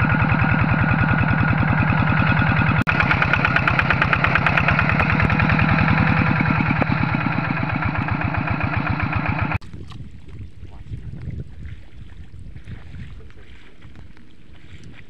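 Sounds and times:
diesel engine chugging: 0.0s - 9.6s
wind noise on microphone: 9.6s - 15.0s.

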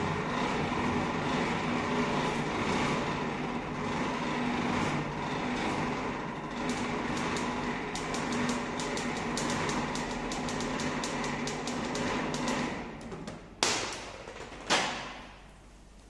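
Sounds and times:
handwheel mechanism grinding clicks: 6.7s - 12.7s.

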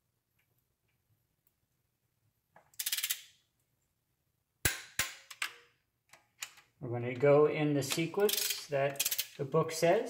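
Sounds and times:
ratchet wrench clicking: 2.8s - 3.3s, 7.9s - 9.4s.

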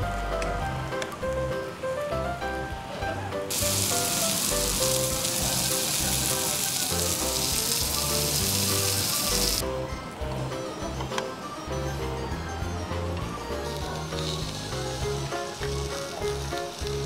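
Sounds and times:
background music: 0.0s - 17.0s
meat sizzling on a grill plate: 3.5s - 9.6s, 13.8s - 17.0s.

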